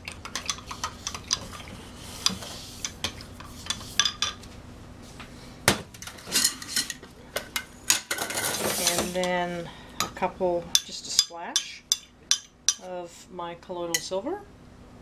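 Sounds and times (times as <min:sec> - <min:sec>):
spoon stirring in glass cup: 0:00.0 - 0:04.4.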